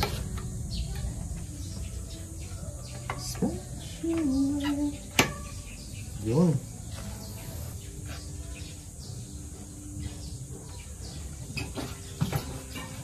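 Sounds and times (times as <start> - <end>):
bike knocking and clattering: 11.1 - 13.0.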